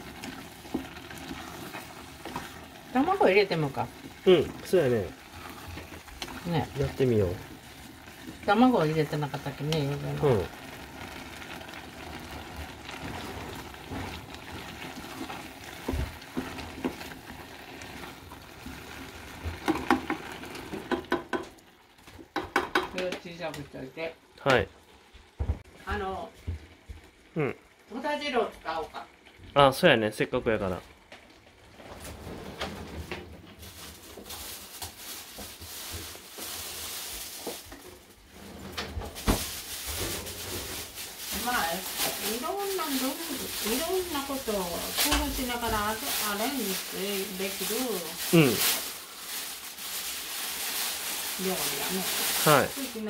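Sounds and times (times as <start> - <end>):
plastic bags rustling: 0.0 - 21.0, 31.3 - 53.0
low sizzle from pan: 0.0 - 53.0
spatula knocking against pan: 20.9 - 21.5, 22.3 - 23.2.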